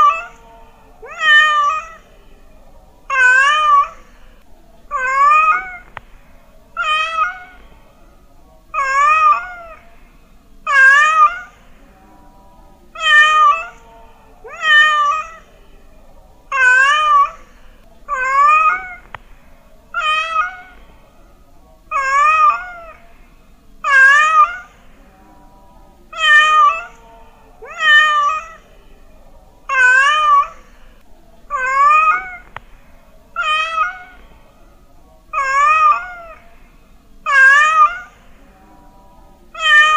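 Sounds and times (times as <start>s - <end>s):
cat meowing: 0.0s - 0.4s, 1.0s - 2.1s, 3.1s - 4.1s, 4.9s - 6.0s, 6.8s - 7.6s, 8.8s - 9.8s, 10.7s - 11.7s, 13.0s - 13.8s, 14.4s - 15.5s, 16.5s - 17.4s, 18.1s - 19.2s, 20.0s - 20.9s, 21.9s - 23.0s, 23.8s - 24.8s, 26.1s - 27.0s, 27.6s - 28.6s, 29.7s - 30.7s, 31.5s - 32.6s, 33.4s - 34.3s, 35.3s - 36.4s, 37.3s - 38.3s, 39.5s - 39.9s.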